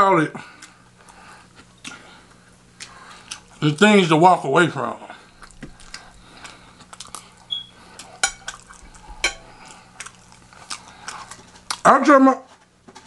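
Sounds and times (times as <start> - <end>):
plate and utensils clinking: 8.2 - 9.6.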